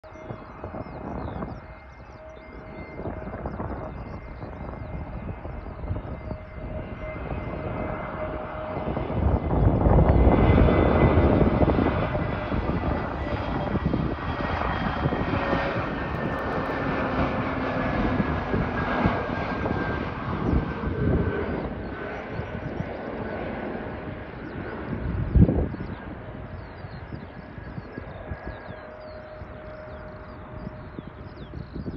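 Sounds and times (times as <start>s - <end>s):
jet engine whine falling: 0.0s - 31.9s
jet engines rumbling: 0.0s - 31.9s.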